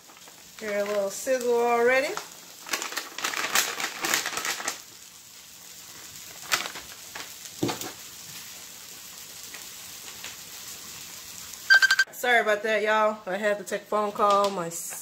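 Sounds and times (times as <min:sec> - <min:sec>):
packet rustling: 0:00.0 - 0:01.5, 0:02.1 - 0:05.0, 0:06.0 - 0:08.0
food sizzling in oil: 0:00.0 - 0:12.1
short beep: 0:11.7 - 0:12.1.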